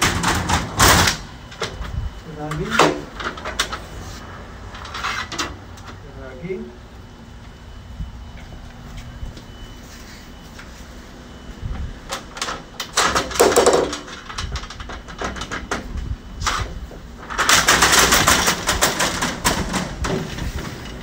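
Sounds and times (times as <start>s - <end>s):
shutter panels rattling and clicking: 17.2s - 20.9s.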